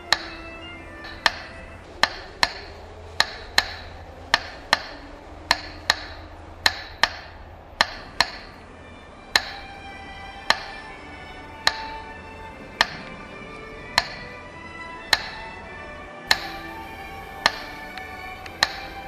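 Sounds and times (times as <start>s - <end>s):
sharp ringing clicks: 16.3s - 16.8s.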